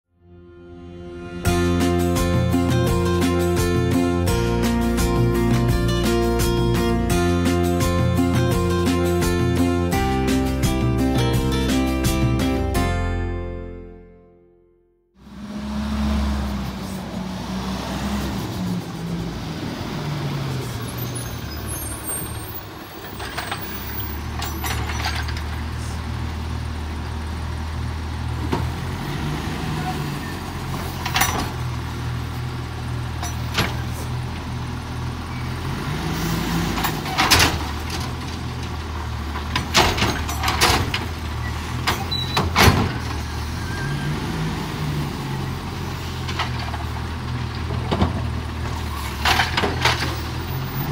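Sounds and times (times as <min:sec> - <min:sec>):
garbage truck engine revving: 0:01.2 - 0:12.8, 0:15.2 - 0:50.9
metal knocks and clanks: 0:39.4 - 0:41.2.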